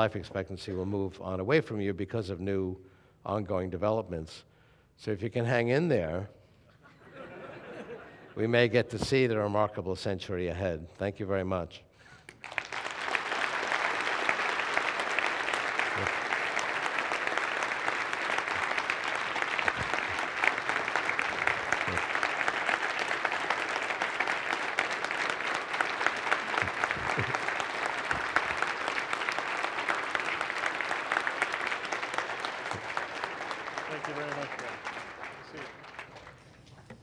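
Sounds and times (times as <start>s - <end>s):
audience applause: 12.3s - 36.9s.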